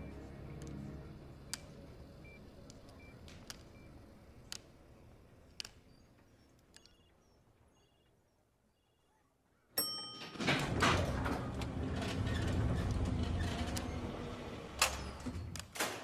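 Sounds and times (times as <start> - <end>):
elevator ding: 9.8 - 12.1
elevator doors sliding: 10.2 - 16.0.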